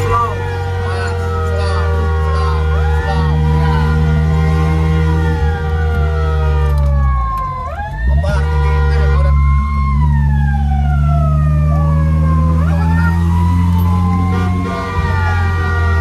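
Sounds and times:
electronic siren wailing: 0:00.0 - 0:16.0.

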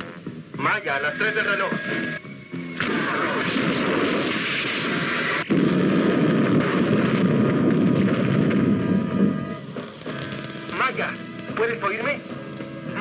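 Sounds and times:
explosion rumbling: 0:02.8 - 0:11.7.

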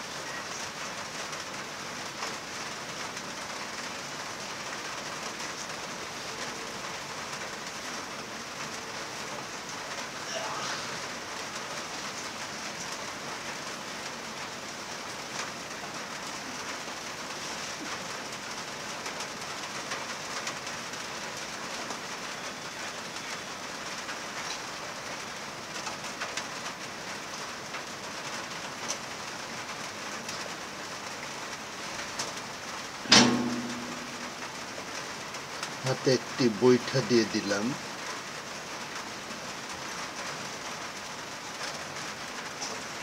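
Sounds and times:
heavy rain falling: 0:00.0 - 0:43.0
sharp knock: 0:33.1 - 0:34.5.

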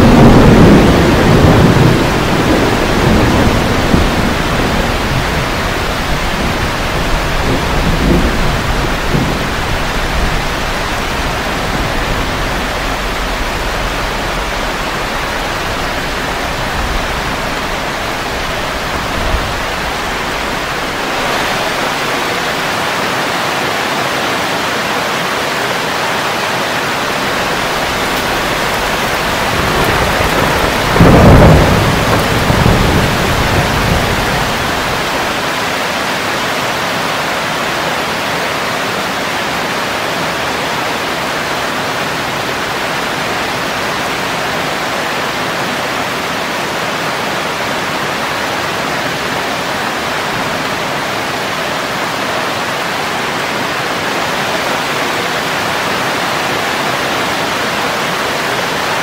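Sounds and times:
thunder cracking and rolling: 0:00.0 - 0:23.4, 0:26.8 - 0:36.0
heavy rain: 0:00.0 - 0:59.0.

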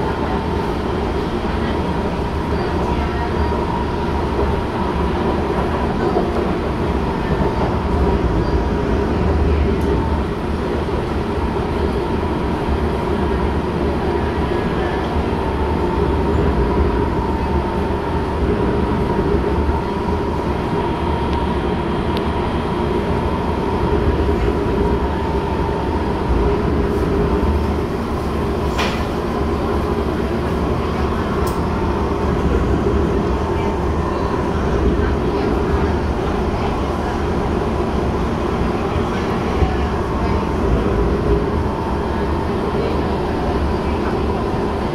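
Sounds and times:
metro wheels rumbling on rail: 0:00.0 - 0:44.9.

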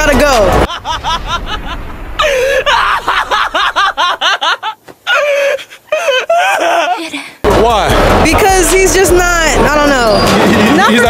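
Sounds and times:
person laughing wildly: 0:00.7 - 0:07.2.

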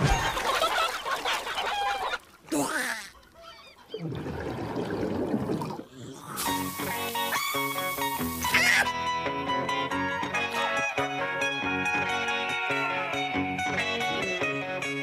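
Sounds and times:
cartoon music: 0:06.5 - 0:09.0.

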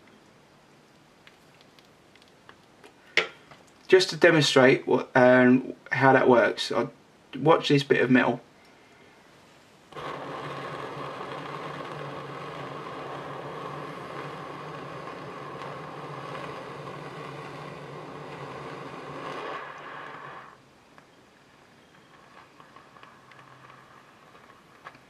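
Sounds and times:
blowpipe torch hissing: 0:09.9 - 0:25.0.

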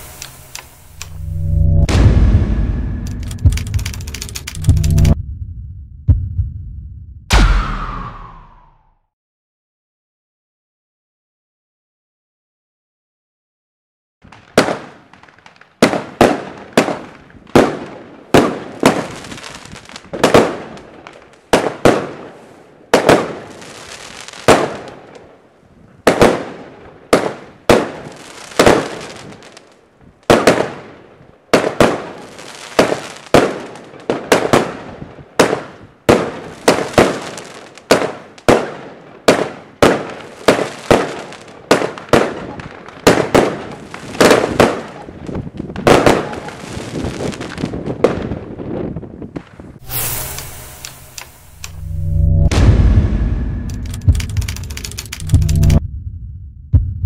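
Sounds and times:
fizzing hiss of firework stars: 0:00.0 - 0:01.0, 0:49.8 - 0:51.6.

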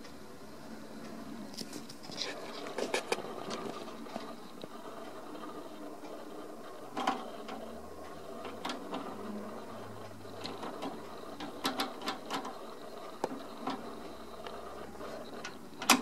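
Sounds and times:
cash register levers clicking: 0:06.9 - 0:16.0.

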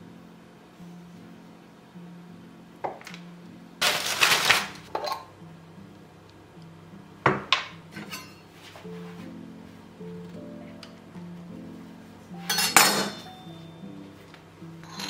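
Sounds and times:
jar and knife clattering: 0:12.5 - 0:13.4.

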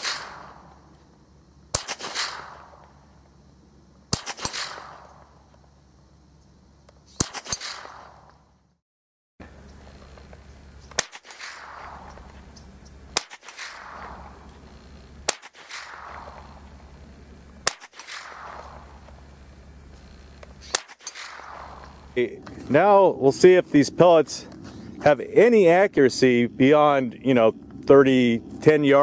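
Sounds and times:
rifle shots with echo: 0:00.0 - 0:00.8, 0:01.7 - 0:03.0, 0:04.1 - 0:05.4, 0:07.1 - 0:08.3, 0:10.9 - 0:12.3, 0:13.1 - 0:14.5, 0:15.2 - 0:16.7, 0:17.6 - 0:19.1, 0:20.6 - 0:22.2
low background rumble: 0:09.4 - 0:29.0.

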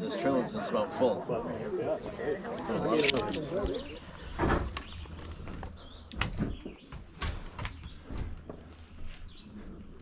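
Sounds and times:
small birds chirping: 0:02.9 - 0:10.0.

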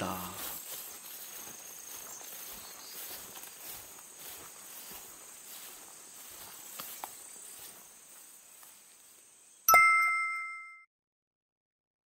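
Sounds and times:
footsteps through grass: 0:00.0 - 0:09.4
insects chirring: 0:00.0 - 0:09.7
bright chime: 0:09.7 - 0:10.9.

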